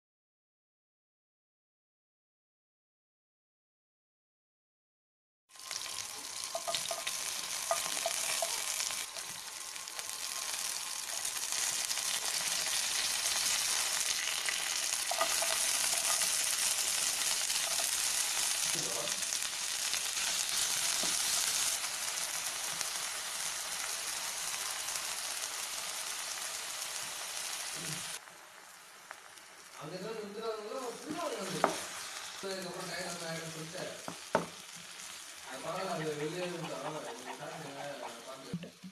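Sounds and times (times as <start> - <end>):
hot oil sizzling in a pan: 5.5 - 38.6
wooden spatula stirring and scraping: 11.1 - 18.7.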